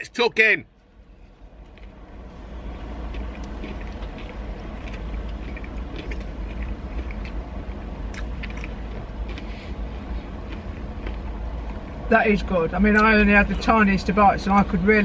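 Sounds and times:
man chewing food: 1.6 - 12.0
wet mouth clicks and smacks: 3.1 - 7.4, 8.0 - 9.5.

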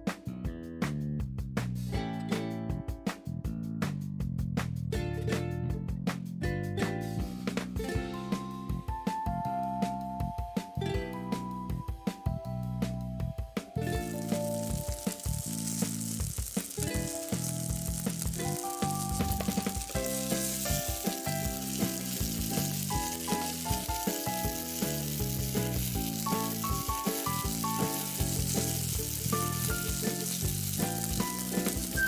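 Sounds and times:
background music: 0.0 - 32.0
fish sizzling in oil: 14.0 - 32.0
spatula moving fish in pan: 14.2 - 32.0.

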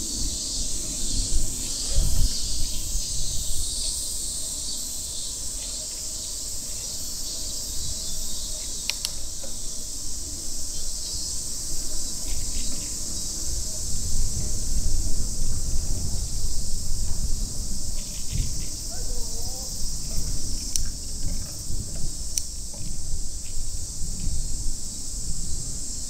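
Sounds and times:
cicadas buzzing: 0.0 - 26.0.

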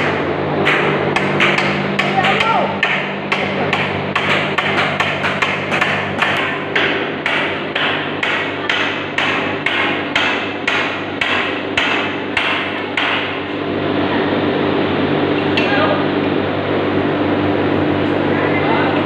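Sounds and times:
steady hum: 0.0 - 19.0
hammer striking nails into wood: 0.6 - 13.3.

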